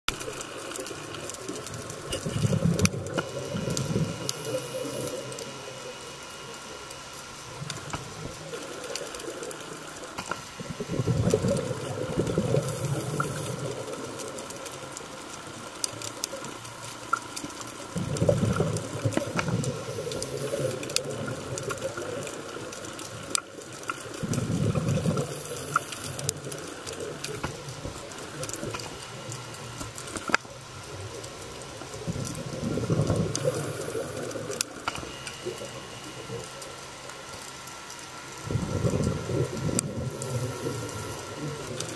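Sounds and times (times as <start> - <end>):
faint clicking: 0.1 - 41.9
exhaled bubbles underwater: 0.2 - 41.9.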